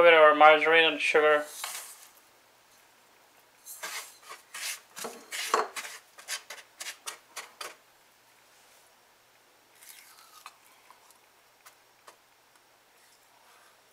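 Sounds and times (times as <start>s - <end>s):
spatula scraping sugar in pan: 3.6s - 7.7s.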